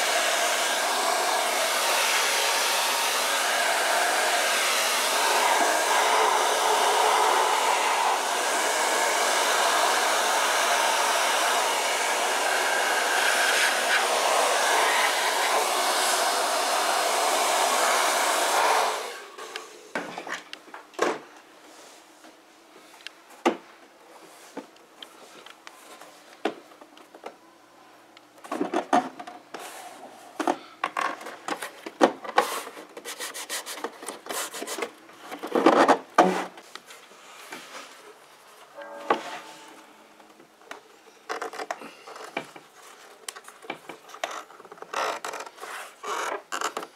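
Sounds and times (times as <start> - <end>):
hair dryer blowing: 0.0 - 19.8.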